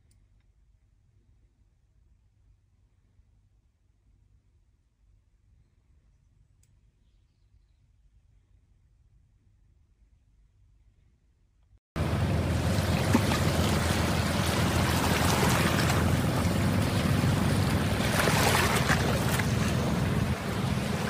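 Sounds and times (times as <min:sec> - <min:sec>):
sea waves: 0:12.0 - 0:21.0
wind buffeting microphone: 0:12.0 - 0:21.0.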